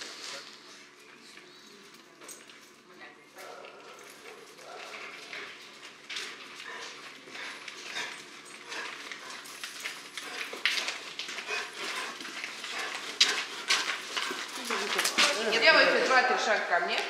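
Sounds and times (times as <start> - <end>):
dog sounds: 3.4 - 15.6
footsteps on concrete: 4.6 - 17.0.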